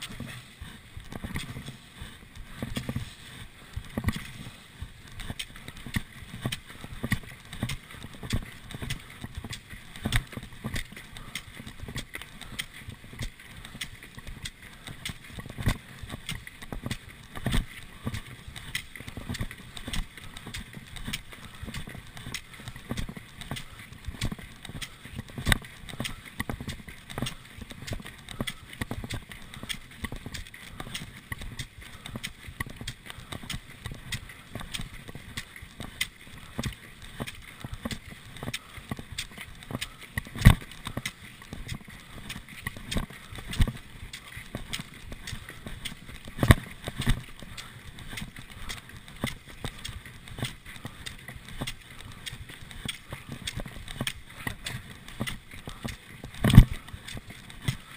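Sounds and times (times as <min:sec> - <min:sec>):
ski poles clicking and knocking: 0:00.0 - 0:57.9
skis running in tracks: 0:00.0 - 0:57.9.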